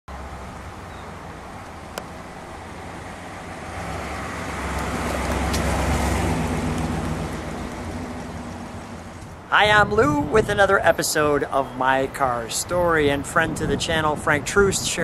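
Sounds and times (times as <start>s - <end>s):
car engine passing by: 0.1s - 9.4s.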